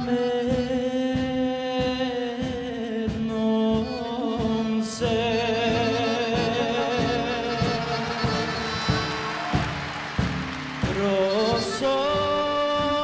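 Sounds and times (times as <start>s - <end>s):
men singing with vibrato: 0.0s - 9.8s, 10.8s - 13.0s
band accompaniment: 0.0s - 13.0s.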